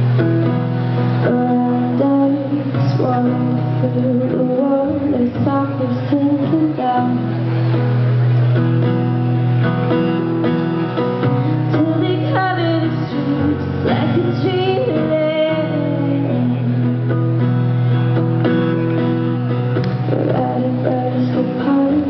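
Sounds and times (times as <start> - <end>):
acoustic guitar: 0.0 - 22.0
woman singing: 1.1 - 7.4, 11.5 - 17.1, 20.0 - 22.0.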